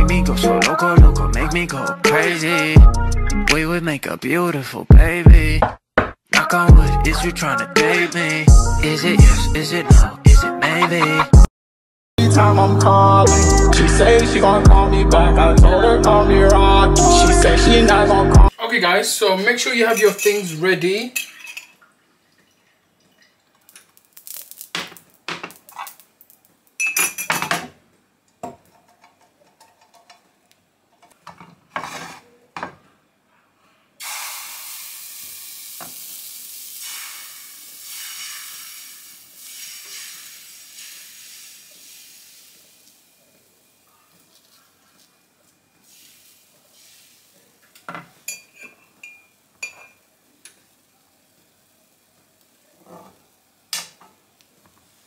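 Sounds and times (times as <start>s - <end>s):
utensil clinking against dishes: 19.9s - 20.5s, 26.8s - 27.7s, 47.9s - 50.0s
batter sizzling in frying pan: 23.6s - 26.8s, 34.0s - 45.2s, 45.8s - 47.8s.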